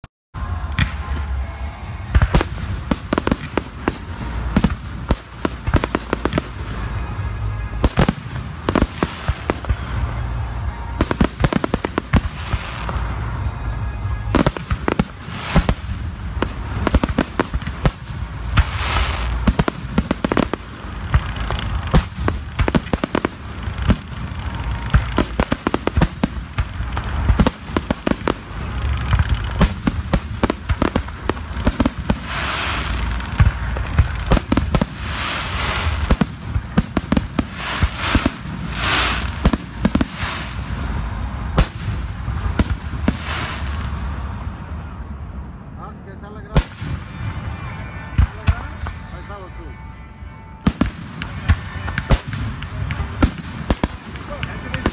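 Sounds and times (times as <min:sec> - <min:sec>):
fireworks bangs: 0:00.4 - 0:44.8, 0:46.3 - 0:54.9
fireworks hiss: 0:14.6 - 0:41.0, 0:41.6 - 0:44.1.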